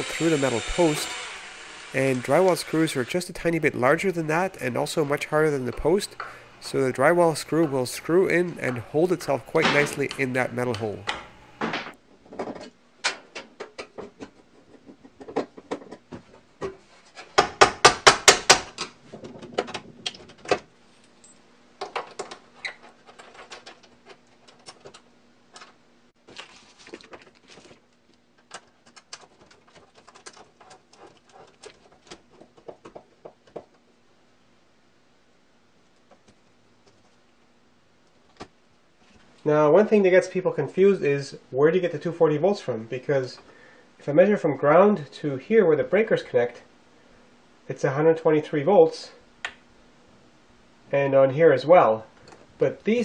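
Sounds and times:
wires and metal rustling: 18.8 - 34.0.

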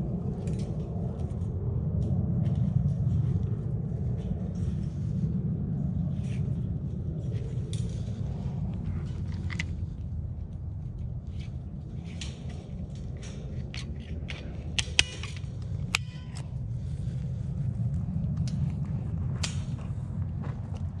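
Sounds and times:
low rumble: 0.0 - 21.0
cable tie tool clicking: 11.4 - 16.4.

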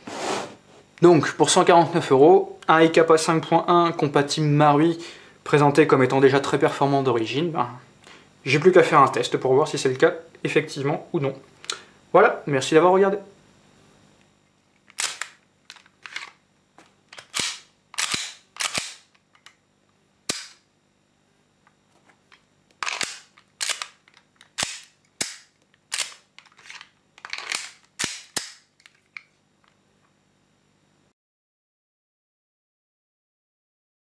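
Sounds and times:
pistol slide racking clacks: 14.9 - 16.4, 17.2 - 19.5, 22.8 - 29.0.

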